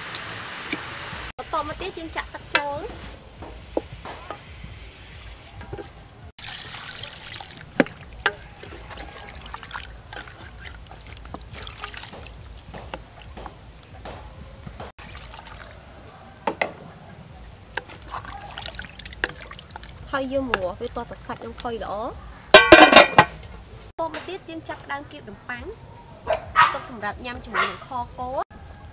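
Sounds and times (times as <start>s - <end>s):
spatula stirring thick sauce: 7.0s - 13.4s, 17.7s - 20.6s
spatula knocking metal pot: 22.5s - 23.4s.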